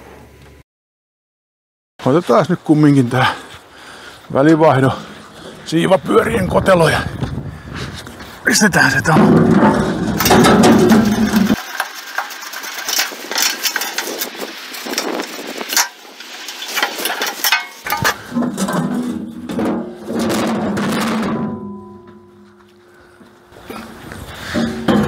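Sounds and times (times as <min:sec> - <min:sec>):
metal guard clanking and rattling: 0:09.1 - 0:23.2.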